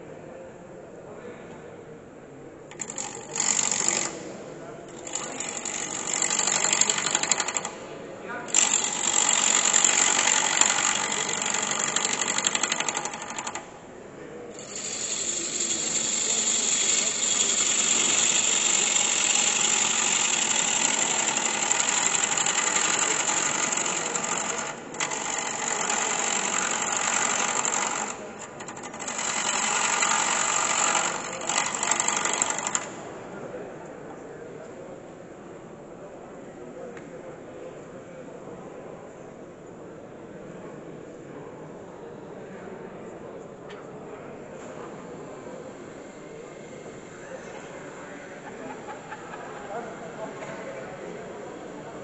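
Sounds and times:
gouge cutting spinning wood: 8.5 - 13.6, 14.6 - 33.0.

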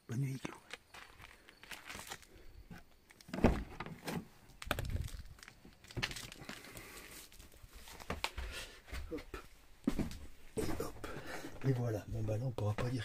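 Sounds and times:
footsteps: 0.6 - 2.8, 7.4 - 13.0.

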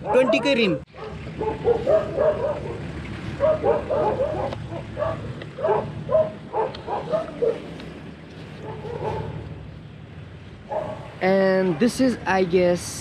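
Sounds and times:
dog barking: 0.0 - 2.8, 3.4 - 7.7, 8.6 - 9.4, 10.7 - 11.1
low steady rumble: 0.0 - 13.0.

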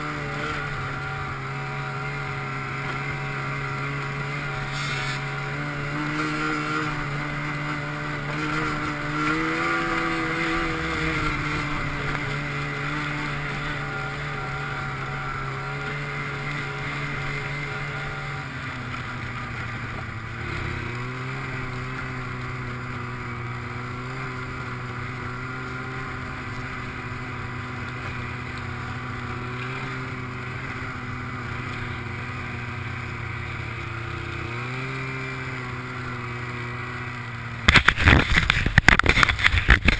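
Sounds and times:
snowmobile engine running: 0.0 - 39.9.

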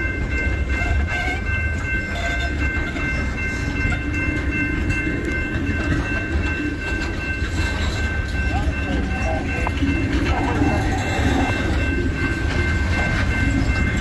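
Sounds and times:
high-pitched tones: 0.0 - 14.0
train wheels rumbling on rail: 0.0 - 14.0.

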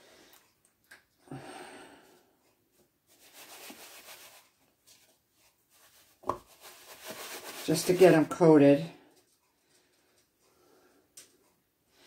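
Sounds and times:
chicken rustling in flour: 3.1 - 8.4.

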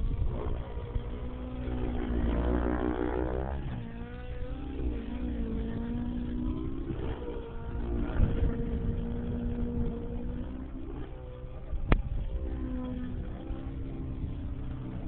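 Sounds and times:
rc helicopter engine and rotors whining: 0.0 - 15.0.

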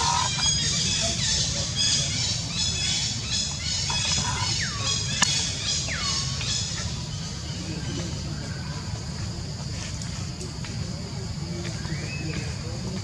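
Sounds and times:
monkey squealing and squawking: 0.0 - 0.7.

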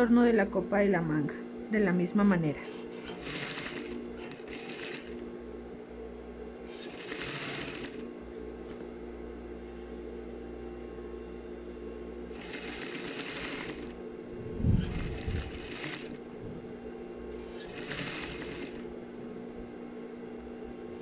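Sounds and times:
sewing machine motor humming: 2.6 - 5.3, 6.6 - 8.1, 12.3 - 14.0, 14.6 - 16.2, 17.4 - 18.9
sewing machine stitching: 2.7 - 5.2, 6.7 - 8.0, 12.3 - 14.0, 14.8 - 16.2, 17.5 - 18.9.

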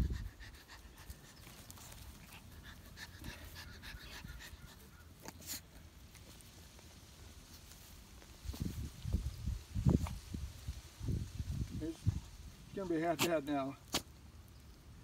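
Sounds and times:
small dog panting: 0.0 - 6.5
scuffs and clicks in dirt: 0.7 - 3.6, 4.6 - 9.2.

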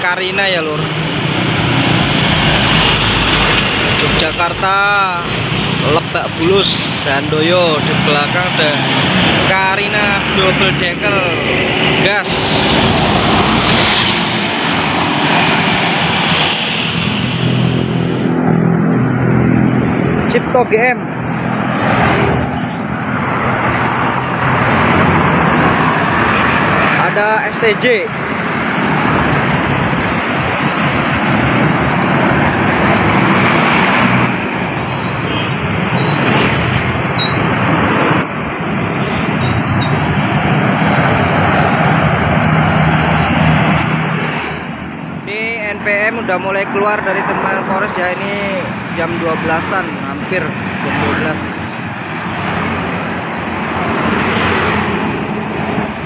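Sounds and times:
bus driving past: 8.5 - 45.2.

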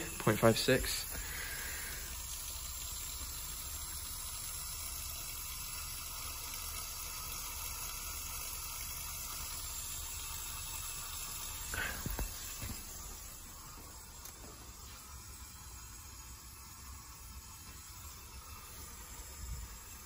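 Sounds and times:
water flowing through pipe: 0.0 - 20.0.

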